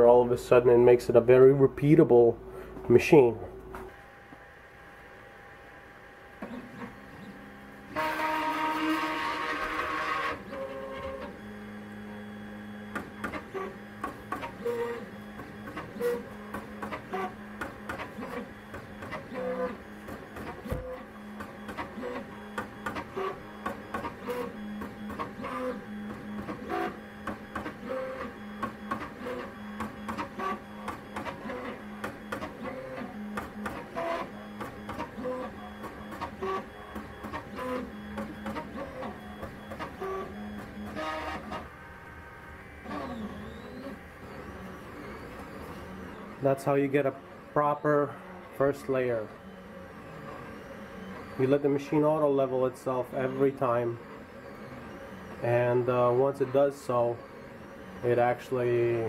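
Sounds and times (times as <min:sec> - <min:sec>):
steady low hum: 0:00.0 - 0:08.0
stepper motors whirring: 0:06.4 - 0:59.0.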